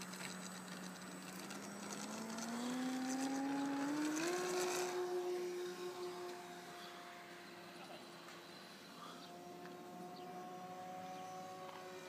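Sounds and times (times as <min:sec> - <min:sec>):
model plane electric motor whining: 0:00.0 - 0:12.0.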